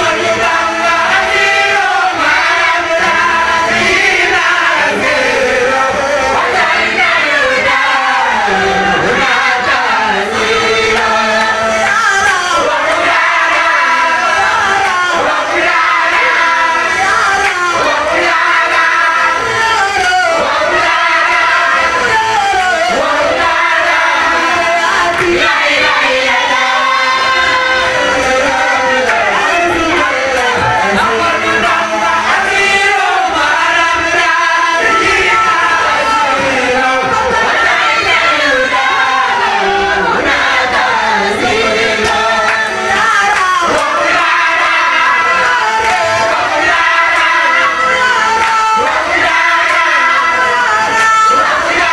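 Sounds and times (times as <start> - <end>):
group singing a chant: 0.0 - 51.9
person singing into microphone: 0.0 - 51.9
hands clapping: 10.4 - 19.9, 22.9 - 33.5, 40.2 - 51.9.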